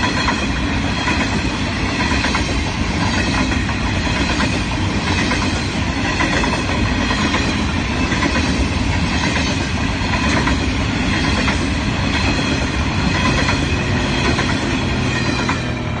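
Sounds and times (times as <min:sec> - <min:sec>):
freight train rumbling past: 0:00.0 - 0:16.0.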